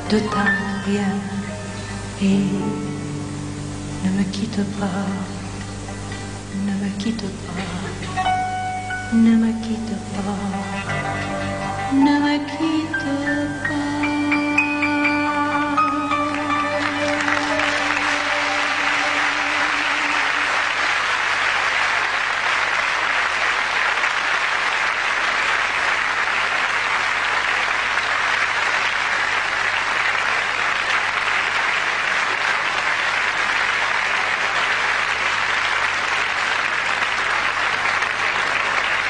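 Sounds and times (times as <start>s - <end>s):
audience applauding: 16.3s - 39.0s.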